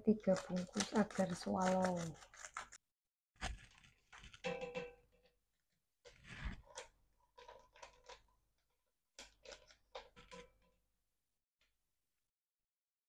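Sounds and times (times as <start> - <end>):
powder pouring into pot: 0.0 - 2.8
paper sachets crinkling: 0.1 - 2.8.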